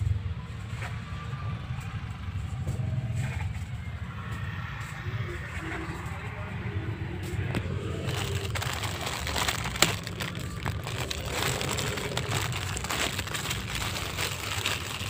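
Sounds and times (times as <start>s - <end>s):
plastic packaging crinkling: 7.8s - 15.0s.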